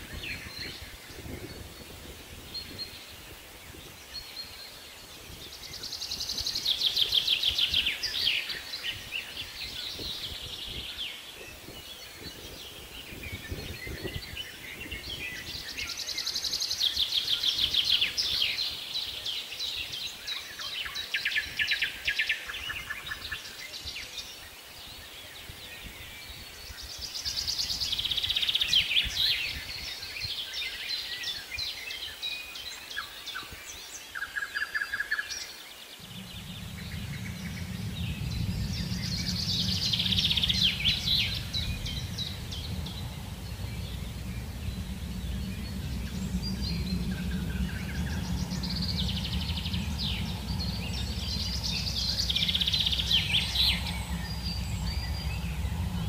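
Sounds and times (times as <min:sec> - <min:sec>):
steady low rumble: 0:35.9 - 0:56.0.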